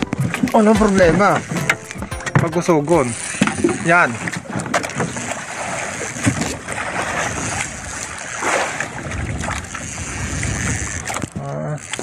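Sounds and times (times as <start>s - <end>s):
waves slapping against boat hull: 0.0s - 12.0s
wind buffeting microphone: 8.8s - 11.4s.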